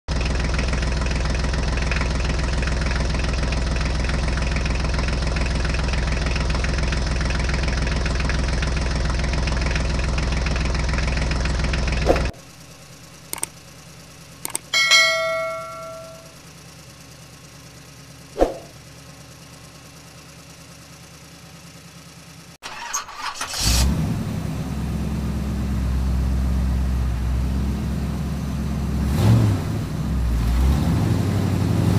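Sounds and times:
vehicle engine running: 0.1 - 31.9
clicks: 13.3 - 13.6, 14.4 - 16.3
bell-like ring: 14.7 - 16.4.

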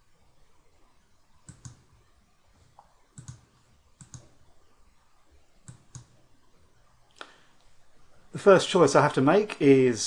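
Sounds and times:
computer mouse clicks: 1.4 - 2.0, 2.7 - 4.4, 5.6 - 6.2.

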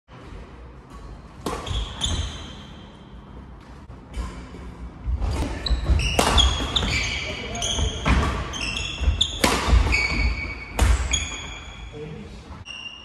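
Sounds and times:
racket hitting shuttlecock: 0.9 - 2.7, 5.2 - 11.6
shoes squeaking on court: 0.9 - 12.0.

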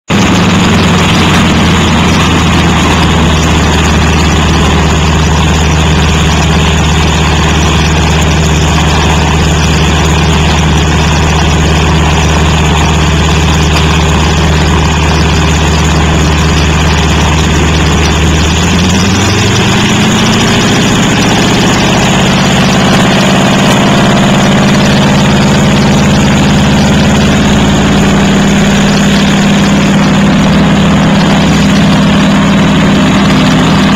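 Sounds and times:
propeller plane engine idling: 0.1 - 33.9.

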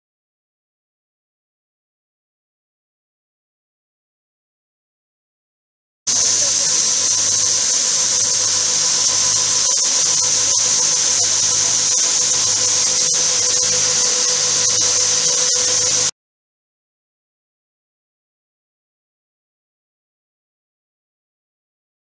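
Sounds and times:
hiss of spray from nozzles: 6.1 - 16.1
steady machine whine: 6.1 - 16.1.

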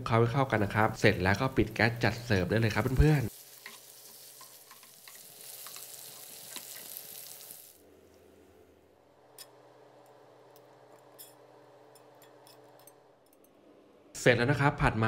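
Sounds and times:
noodles sizzling in frying pan: 0.5 - 7.8.

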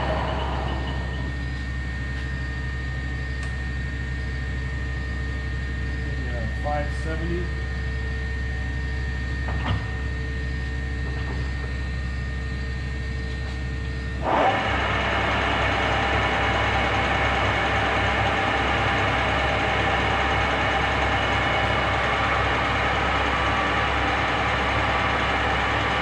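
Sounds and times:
lathe motor humming: 0.0 - 2.3, 14.2 - 26.0
lathe gearing running: 0.0 - 4.6, 8.7 - 26.0
small click: 3.4 - 3.6.

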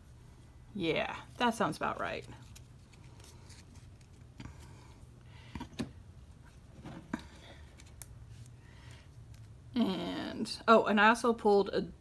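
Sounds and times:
low steady hum: 0.0 - 12.0
cards in plastic sleeves flipped: 2.1 - 4.7.

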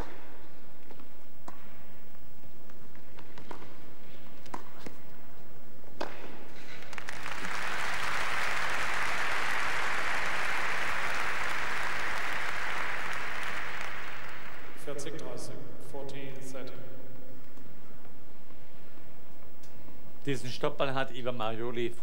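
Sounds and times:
crowd applause: 6.7 - 14.8.

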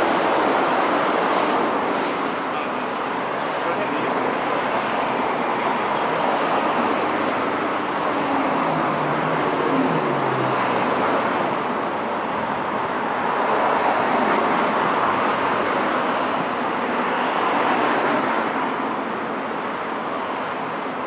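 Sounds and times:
road traffic noise: 0.0 - 21.0
passing vehicle engine hum: 3.5 - 12.1.

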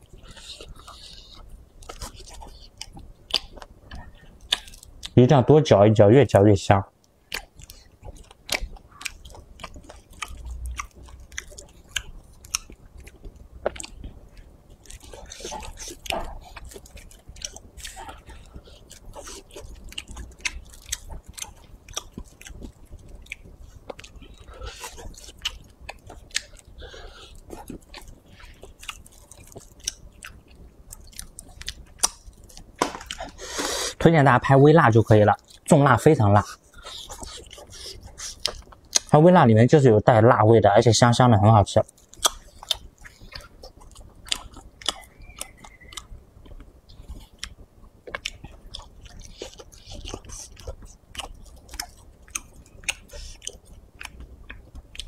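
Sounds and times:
mouth chewing dry meat: 0.0 - 5.2, 7.3 - 39.1, 41.8 - 55.0
mouth clicks: 44.3 - 46.1.

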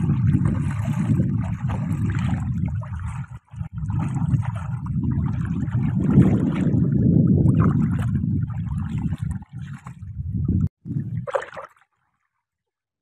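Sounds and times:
hands splashing in muddy water: 0.0 - 6.9, 11.0 - 12.0.

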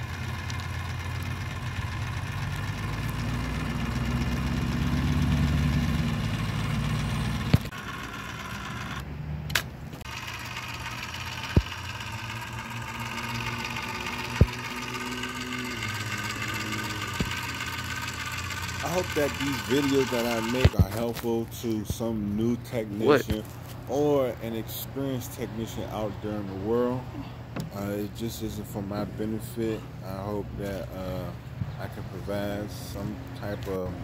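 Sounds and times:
caulking gun motor running: 0.0 - 24.0
sharp clicks: 7.4 - 7.8, 17.0 - 18.8.

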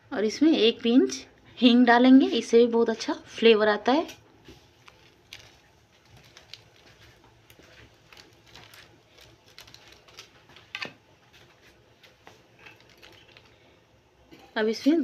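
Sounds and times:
spices crackling in hot oil: 4.0 - 15.0.

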